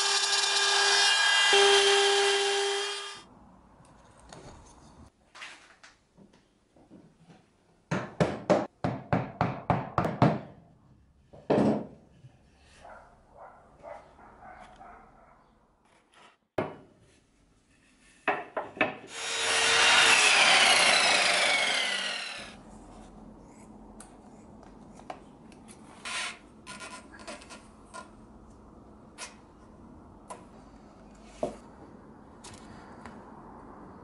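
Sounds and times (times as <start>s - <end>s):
power tool whining: 19.1s - 22.6s.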